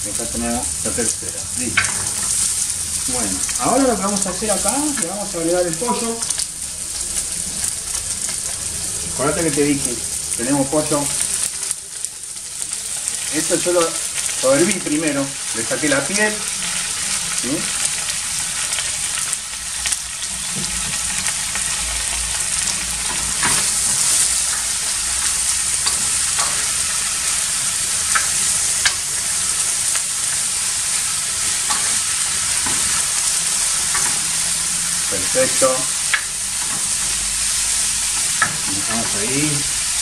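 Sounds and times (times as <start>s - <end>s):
food sizzling in oil: 0.0s - 40.0s
wooden spoon scraping a pan: 0.9s - 6.4s.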